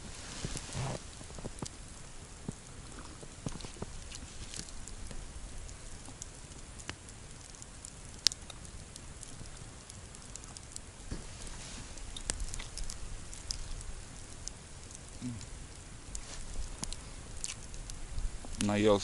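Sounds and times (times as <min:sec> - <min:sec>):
campfire crackling: 0:00.0 - 0:19.0
fire popping: 0:00.0 - 0:19.0.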